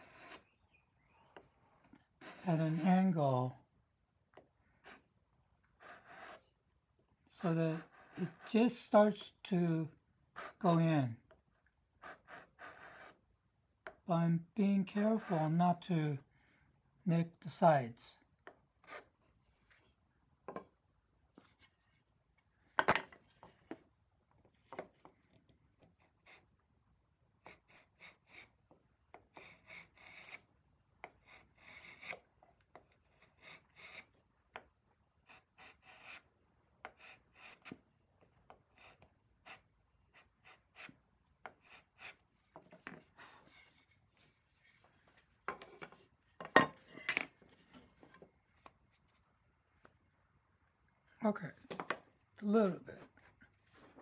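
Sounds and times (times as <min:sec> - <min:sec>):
hand file rasping on wood: 0:07.4 - 0:08.8, 0:27.4 - 0:28.5, 0:29.1 - 0:34.1, 0:35.2 - 0:37.8.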